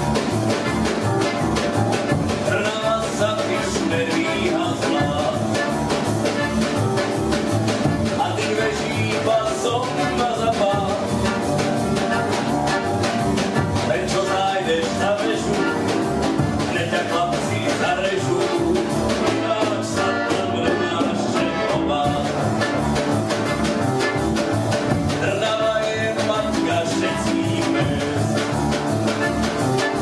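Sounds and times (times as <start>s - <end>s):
accordion: 0.0s - 30.0s
double bass: 0.0s - 30.0s
drums: 0.0s - 30.0s
upright piano: 0.0s - 30.0s
man singing into a microphone: 2.4s - 5.7s, 8.2s - 11.1s, 13.8s - 15.9s, 16.7s - 22.5s, 25.2s - 28.6s.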